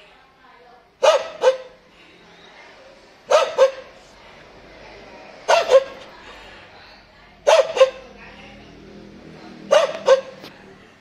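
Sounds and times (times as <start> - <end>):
dog barking hoarsely: 1.0 - 1.8, 3.3 - 3.9, 5.5 - 6.0, 7.4 - 8.1, 9.6 - 10.5.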